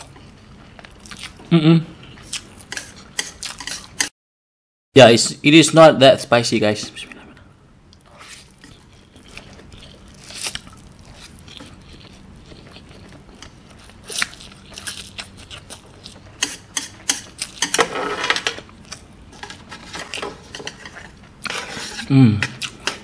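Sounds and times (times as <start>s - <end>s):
person slurping and chewing noodles: 8.0s - 18.2s.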